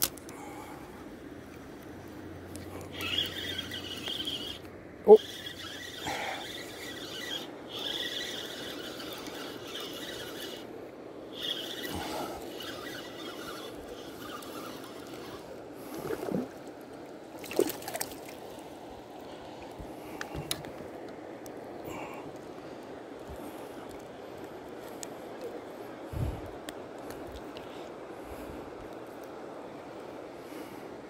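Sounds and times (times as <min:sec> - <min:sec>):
fishing reel whirring squeal: 0:02.8 - 0:10.7, 0:11.3 - 0:15.6.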